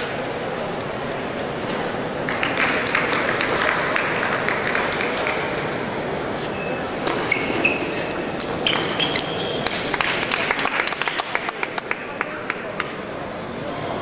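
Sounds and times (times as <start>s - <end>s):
murmur of large hall: 0.0s - 14.0s
shoes squeaking on floor: 1.0s - 2.0s, 6.4s - 9.9s.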